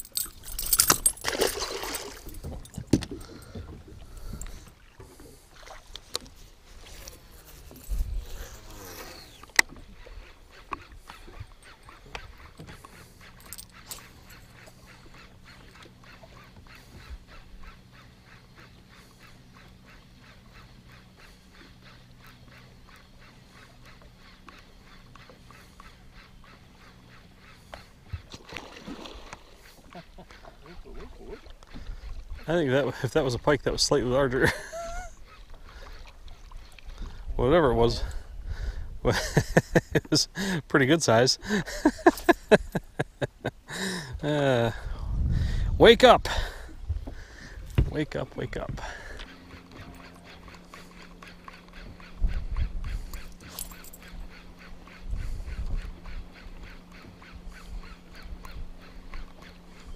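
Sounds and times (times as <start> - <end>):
knocks and rattles on a boat: 0.0 - 4.6, 46.3 - 59.6
water splashing: 0.0 - 7.7, 28.1 - 32.4.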